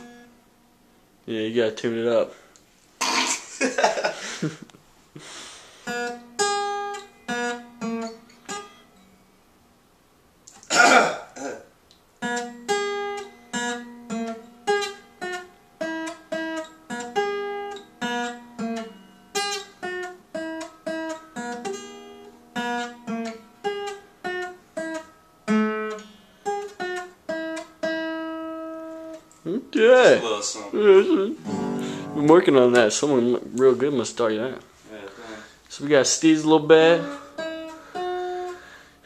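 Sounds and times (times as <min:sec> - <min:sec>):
acoustic guitar picked tune: 0:00.0 - 0:02.1, 0:02.7 - 0:39.0.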